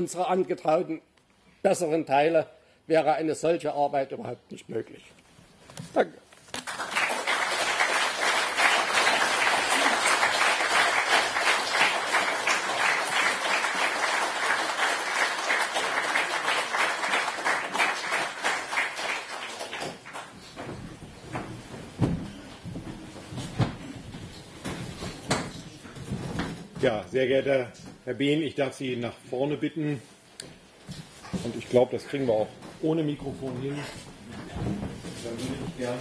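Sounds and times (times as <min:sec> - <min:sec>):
audience applauding: 0:06.6 - 0:20.4.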